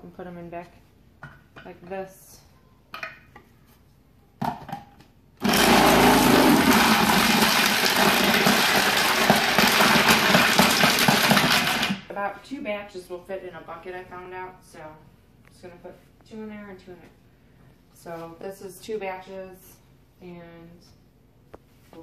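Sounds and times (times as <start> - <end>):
food processor motor running: 5.4 - 12.0.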